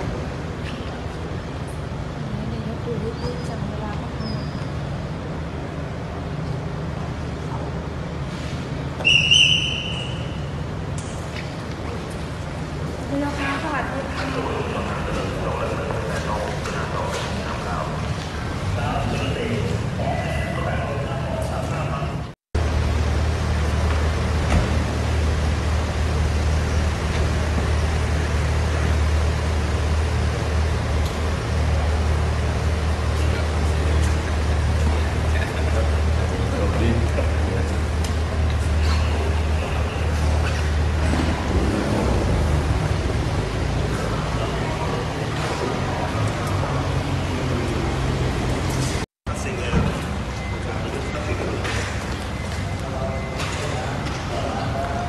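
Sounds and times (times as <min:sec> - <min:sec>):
car engine idling: 0:04.9 - 0:55.0
shrill whistle-like blast: 0:09.0 - 0:10.5.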